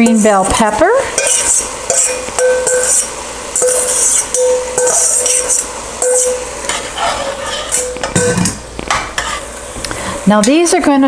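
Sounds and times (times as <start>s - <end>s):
utensil scraping metal bowl: 1.0s - 9.6s
bowl ringing: 1.2s - 6.6s.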